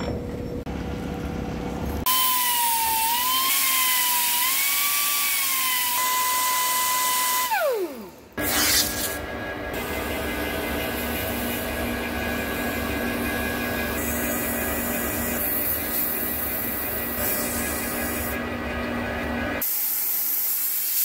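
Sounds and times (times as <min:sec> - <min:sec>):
pneumatic grinder whine: 0:00.0 - 0:21.0
lathe humming: 0:09.0 - 0:19.6.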